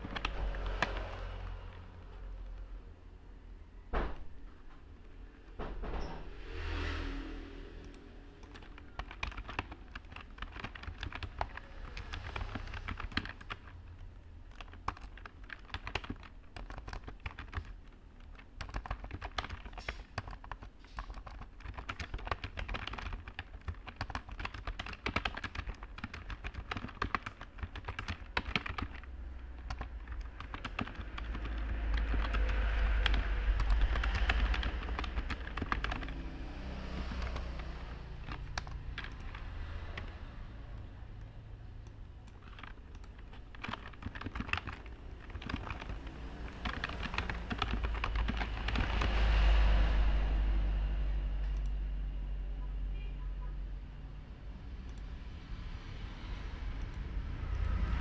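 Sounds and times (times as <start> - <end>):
computer keyboard typing: 0.0 - 2.7, 7.8 - 49.8, 56.8 - 58.0.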